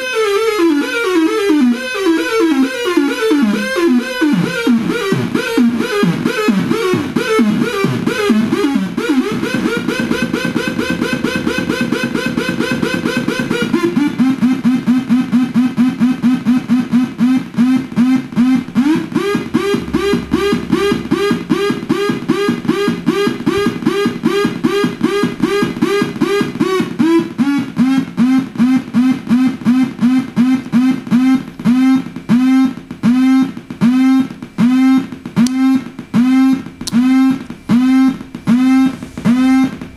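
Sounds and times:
buzzy pulsing synthesizer tone: 0.2 - 35.0, 35.6 - 39.9.

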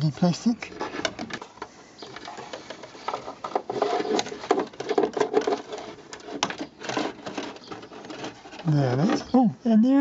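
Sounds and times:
plastic strip scraping through rubber: 2.2 - 9.3.

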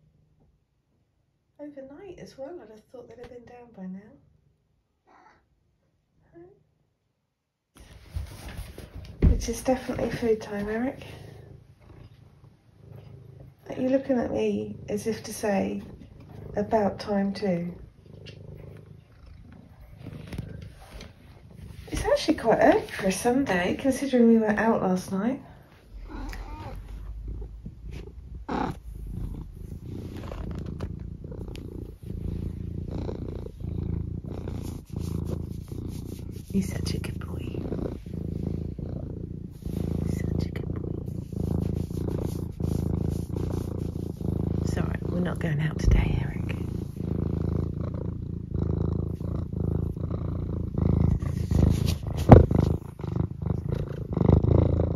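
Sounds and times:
cat purring: 0.0 - 7.1, 7.8 - 54.9
fur bumping microphone: 7.8 - 11.0, 19.8 - 24.7, 50.6 - 54.1.

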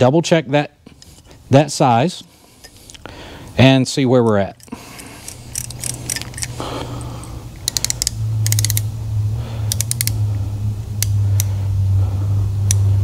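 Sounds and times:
steady low hum: 0.0 - 13.0
small metallic clicks: 4.6 - 6.6, 7.6 - 8.9, 9.6 - 10.2.

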